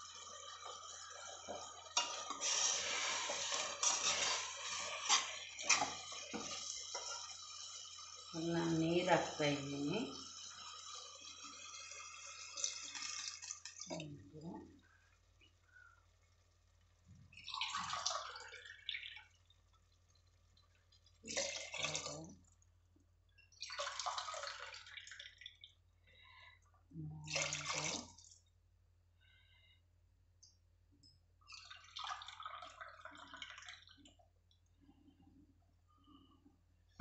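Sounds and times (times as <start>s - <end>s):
water pouring into pot: 0.0s - 14.0s, 17.2s - 22.6s, 23.5s - 26.4s, 27.3s - 28.4s, 31.5s - 34.2s.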